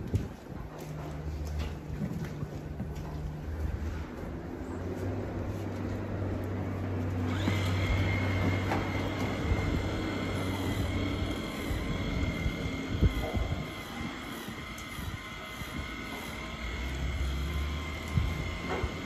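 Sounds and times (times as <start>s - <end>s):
electric grooming tool whining: 7.0s - 19.0s.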